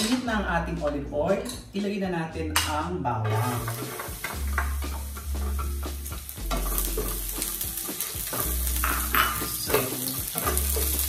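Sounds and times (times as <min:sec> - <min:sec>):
garlic sizzling in oil: 0:03.3 - 0:11.0.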